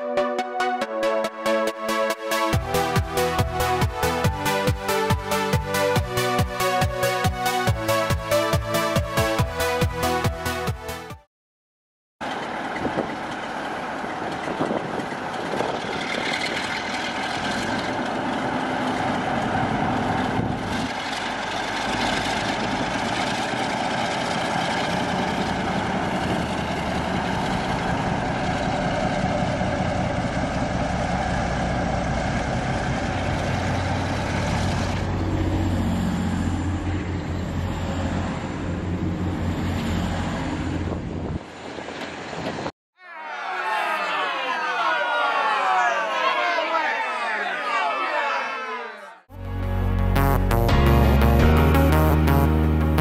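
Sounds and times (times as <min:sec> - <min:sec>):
diesel locomotive engine under load: 0:12.2 - 0:42.7
diesel train running close by: 0:12.2 - 0:42.7.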